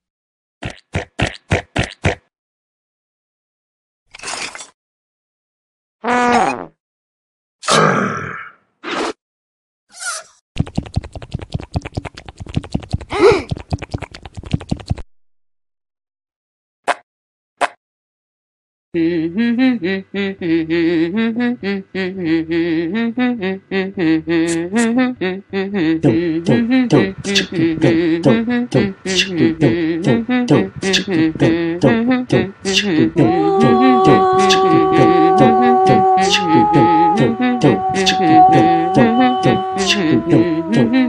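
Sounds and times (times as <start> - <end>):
beatbox-like clicks: 10.6 - 15.0, 26.1 - 33.2, 34.4 - 35.2
voice humming a tune: 13.1 - 13.6, 19.0 - 41.0.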